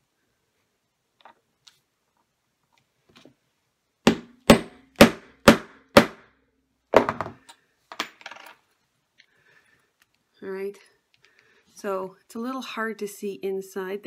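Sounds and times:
hammer striking metal tool: 4.1s - 6.2s.

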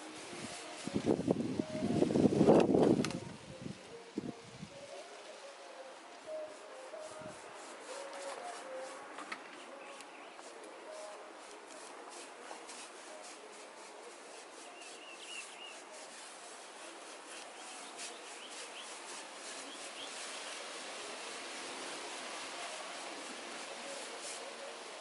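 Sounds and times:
hand trowel scraping cement: 6.4s - 9.4s, 10.4s - 25.0s.

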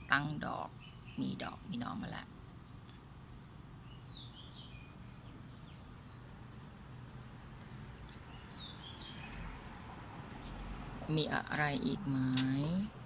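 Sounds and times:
small bird chirping: 0.0s - 2.0s, 2.8s - 6.4s, 7.9s - 9.6s.

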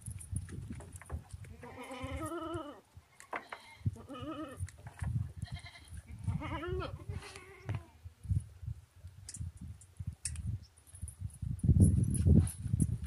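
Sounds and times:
goats bleating: 1.6s - 4.6s, 5.4s - 7.8s.

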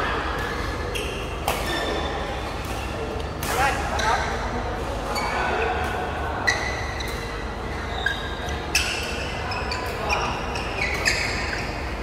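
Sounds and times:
sneakers squeaking on court: 6.4s - 12.0s.

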